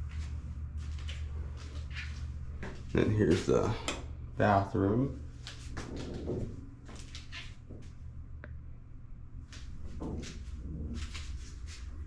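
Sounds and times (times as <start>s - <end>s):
steady low hum: 0.0s - 12.0s
soft knocks and rustles: 5.4s - 7.9s, 9.6s - 11.9s.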